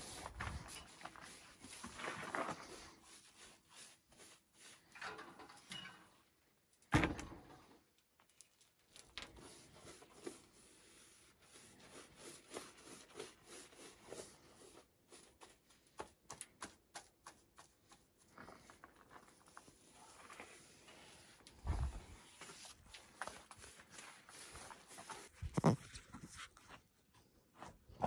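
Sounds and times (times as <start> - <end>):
paintbrush scratching on wall: 0.0 - 5.0, 9.3 - 16.1, 19.3 - 26.4.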